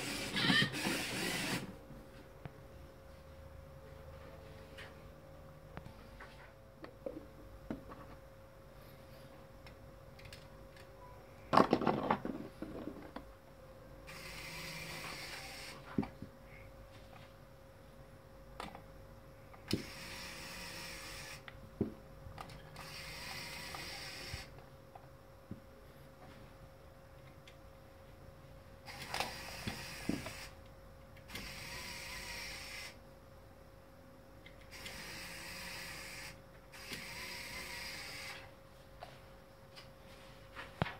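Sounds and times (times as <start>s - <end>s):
servo motors whirring: 0.0s - 1.7s, 14.1s - 15.9s, 19.7s - 21.4s, 22.8s - 24.5s, 28.9s - 30.6s, 31.3s - 33.0s, 34.7s - 38.5s.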